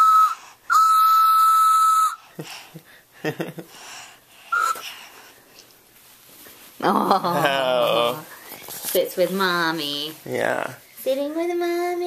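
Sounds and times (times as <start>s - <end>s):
toy train whistle toots: 0.0s - 2.2s.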